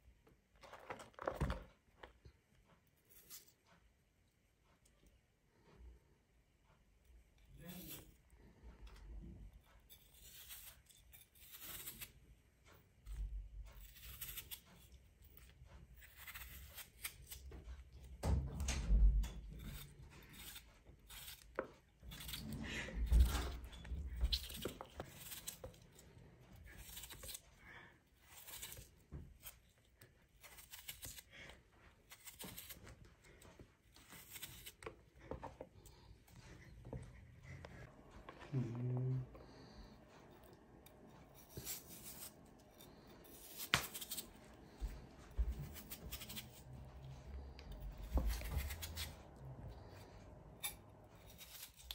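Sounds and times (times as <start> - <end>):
knife slicing potato: 7.5 - 8.2, 9.5 - 12.2, 13.0 - 18.4, 19.4 - 35.3, 41.2 - 49.3, 50.5 - 51.9.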